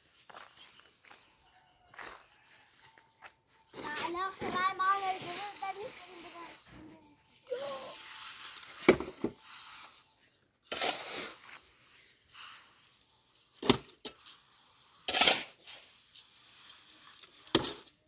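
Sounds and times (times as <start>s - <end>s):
trowel scraping wet cement: 3.7s - 18.0s.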